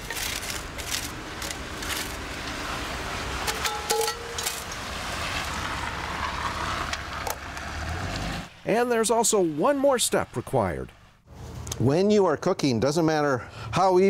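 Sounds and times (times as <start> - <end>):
metal tongs clinking on charcoal: 3.5 - 4.8.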